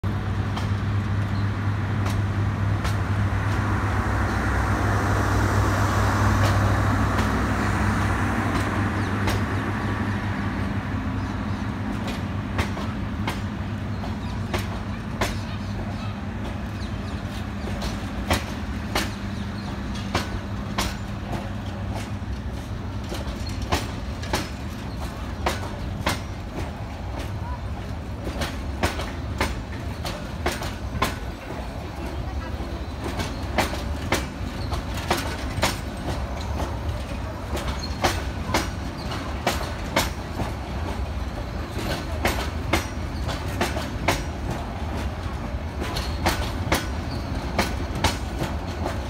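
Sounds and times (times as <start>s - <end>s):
train rumbling past: 0.0s - 49.0s
wheels clicking over rail joints: 11.2s - 49.0s.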